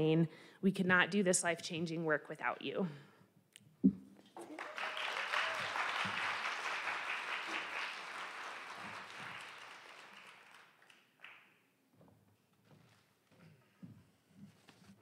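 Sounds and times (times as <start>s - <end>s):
audience applauding: 4.4s - 11.5s.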